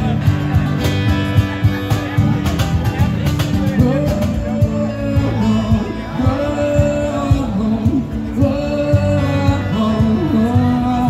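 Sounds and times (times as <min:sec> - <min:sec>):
cajon beat: 0:00.0 - 0:11.0
strummed acoustic guitars: 0:00.0 - 0:11.0
man singing into a microphone: 0:03.6 - 0:11.0.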